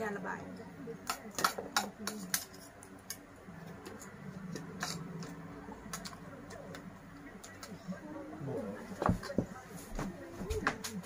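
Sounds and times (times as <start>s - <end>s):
spoon clicking on plates: 1.0s - 3.2s, 3.8s - 6.8s.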